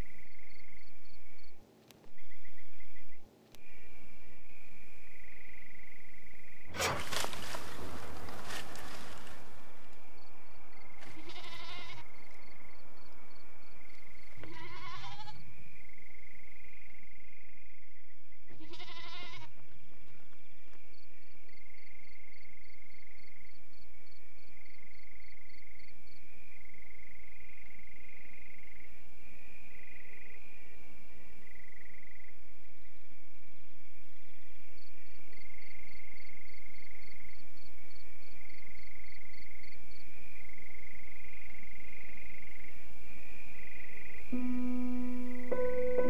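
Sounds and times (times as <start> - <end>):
livestock bleating: 11.0 - 12.3, 14.4 - 15.4, 18.5 - 19.6
steady high whine: 44.3 - 46.0.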